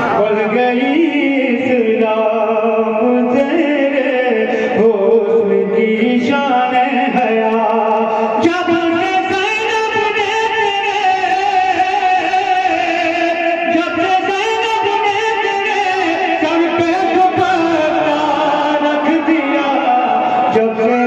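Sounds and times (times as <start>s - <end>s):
man singing unaccompanied: 0.0s - 21.0s.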